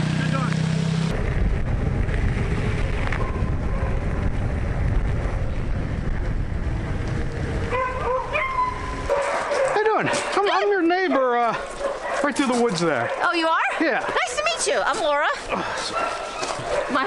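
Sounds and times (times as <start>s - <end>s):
tyre noise on road: 0.0s - 17.0s
wind buffeting microphone: 1.1s - 10.8s.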